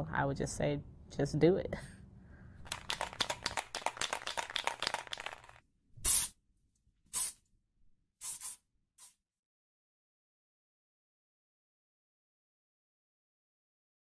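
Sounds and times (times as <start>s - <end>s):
dense crackling clicks: 2.6s - 5.6s
short bursts of hissing: 6.0s - 6.4s, 7.1s - 7.4s, 8.2s - 9.2s.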